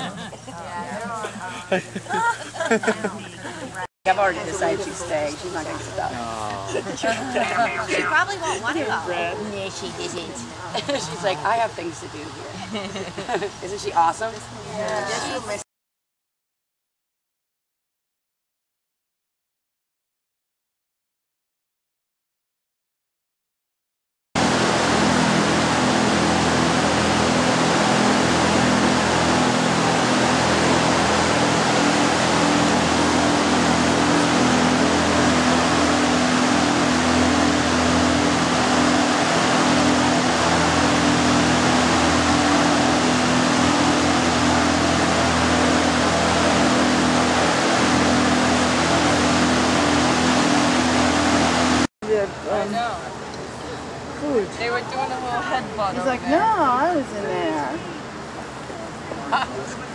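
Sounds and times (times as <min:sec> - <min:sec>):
fan rushing noise: 0:00.0 - 0:15.6, 0:24.4 - 0:59.9
low hum: 0:24.4 - 0:51.9.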